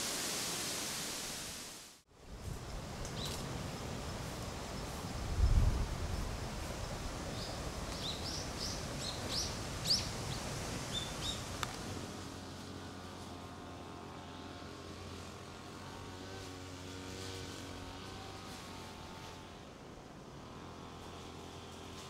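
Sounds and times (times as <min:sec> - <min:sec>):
low hum with held tones: 0:02.1 - 0:16.5.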